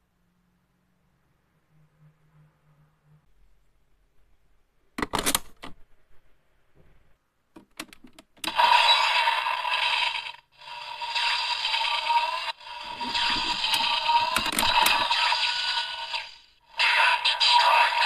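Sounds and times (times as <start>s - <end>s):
toy electronic sound effects and music: 8.5s - 18.0s.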